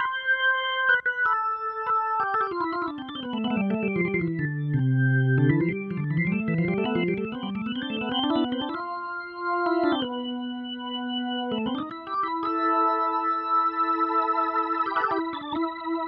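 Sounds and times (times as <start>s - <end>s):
organ playing fast runs: 0.0s - 16.0s.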